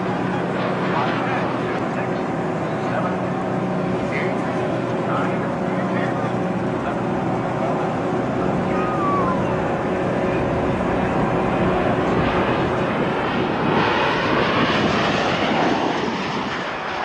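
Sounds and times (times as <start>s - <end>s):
propeller plane engine drone: 0.0s - 17.0s
rushing air: 8.5s - 17.0s.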